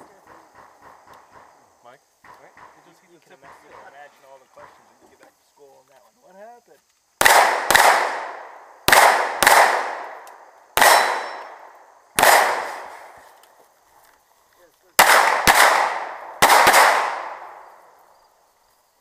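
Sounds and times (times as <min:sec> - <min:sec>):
pistol shots: 0:07.2 - 0:13.1, 0:15.0 - 0:17.8.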